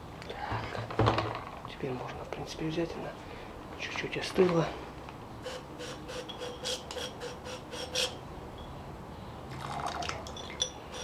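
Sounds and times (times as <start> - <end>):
glass beakers squeaking and clinking: 6.1 - 8.8, 9.6 - 11.0
liquid trickling into beaker: 9.5 - 11.0.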